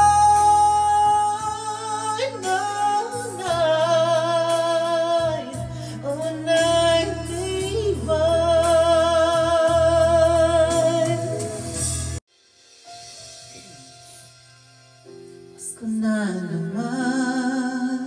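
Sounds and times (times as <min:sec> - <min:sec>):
man singing into a microphone: 0:00.0 - 0:11.8, 0:15.9 - 0:18.0
backing music: 0:00.0 - 0:17.6.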